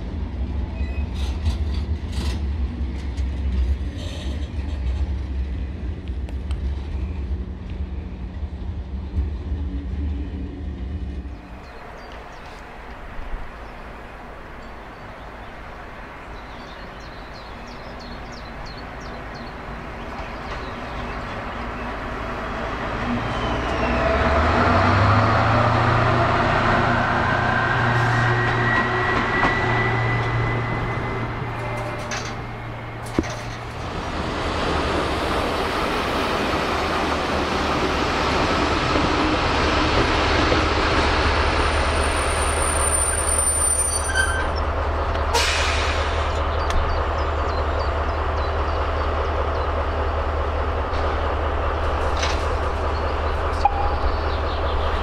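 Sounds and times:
diesel locomotive engine drone: 0.0s - 55.0s
diesel locomotive running: 0.0s - 55.0s
thin wheel squeal: 42.4s - 44.6s.

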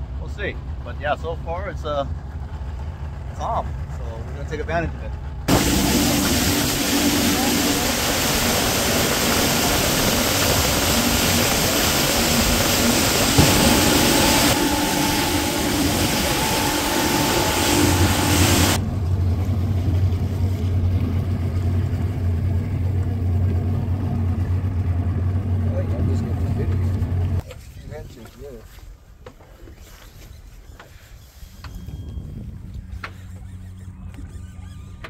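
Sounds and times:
boat engine running: 0.0s - 27.4s, 31.3s - 35.0s
rush of wind and water: 5.5s - 18.8s.

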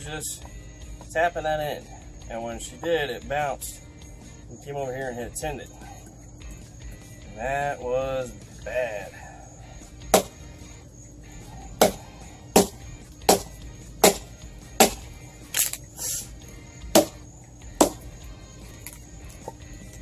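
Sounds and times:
hatchet chopping wood: 10.1s - 10.4s, 11.8s - 15.7s, 16.9s - 17.2s, 17.8s - 18.0s.

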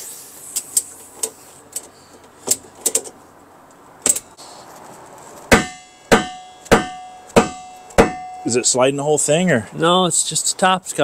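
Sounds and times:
hammer blows on metal: 5.5s - 8.8s.

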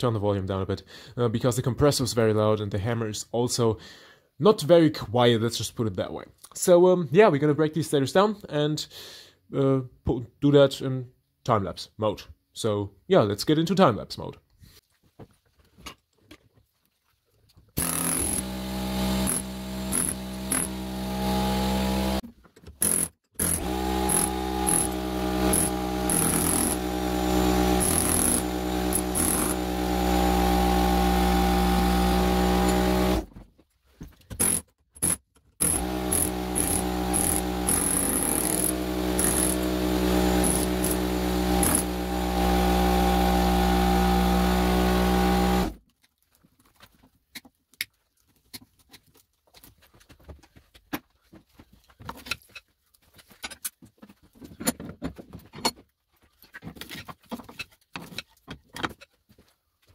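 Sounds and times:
air compressor running: 17.8s - 22.2s, 23.4s - 33.3s, 35.6s - 45.8s
pneumatic air hammer chiseling metal: 17.8s - 22.2s, 22.8s - 33.3s, 34.3s - 45.8s.

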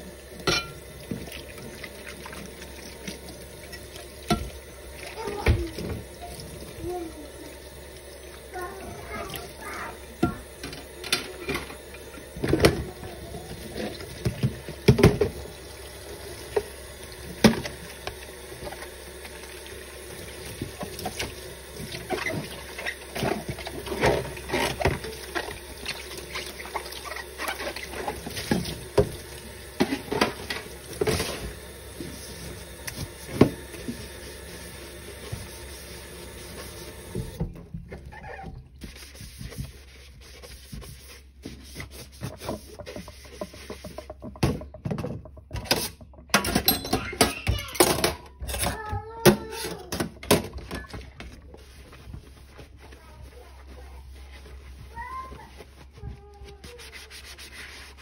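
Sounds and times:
dishes clattering: 0.4s - 1.3s, 42.6s - 48.8s
tap running into sink: 8.6s - 15.6s, 16.4s - 34.2s, 36.4s - 37.6s.

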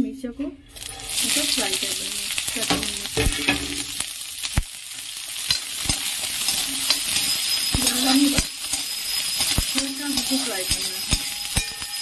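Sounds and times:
chillies sizzling in hot oil: 0.7s - 12.0s
metal spatula scraping pan: 5.4s - 12.0s.

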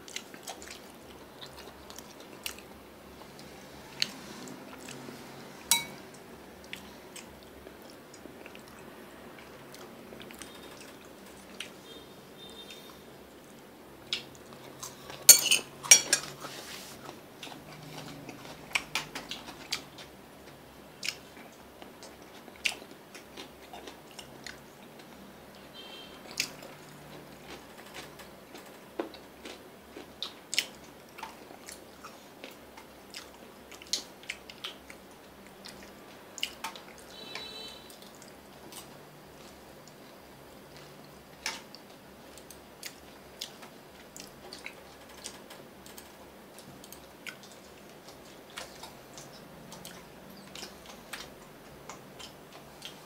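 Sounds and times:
chopsticks clicking on plates: 5.7s - 6.0s, 15.3s - 16.4s.

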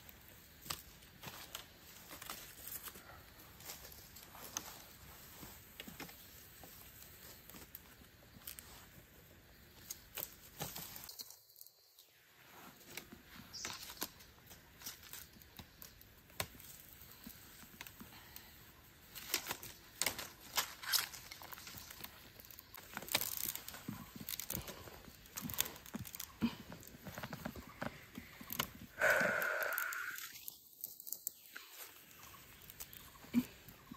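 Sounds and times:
rustling of leaf litter: 12.4s - 33.9s.

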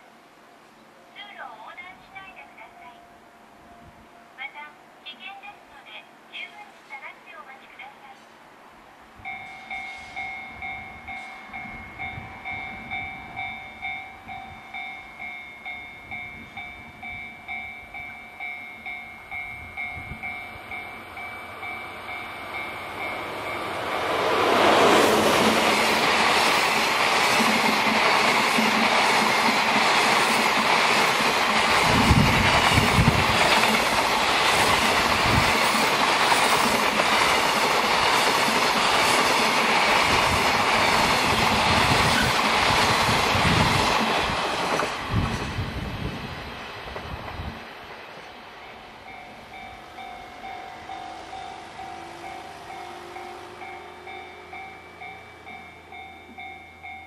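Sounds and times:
train passing with rumble: 8.1s - 57.0s
railway crossing warning bell: 9.2s - 44.3s, 48.7s - 57.0s.

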